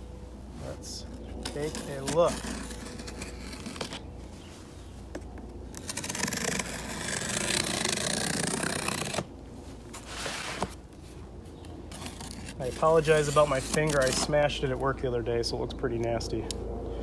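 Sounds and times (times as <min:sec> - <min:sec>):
knife slitting tape on cardboard: 0:01.0 - 0:04.2, 0:05.1 - 0:09.3, 0:11.9 - 0:14.4.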